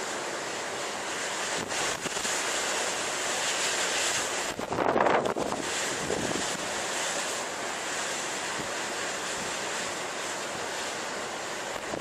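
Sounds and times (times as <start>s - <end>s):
waves washing: 0.0s - 12.0s
wind: 0.0s - 12.0s.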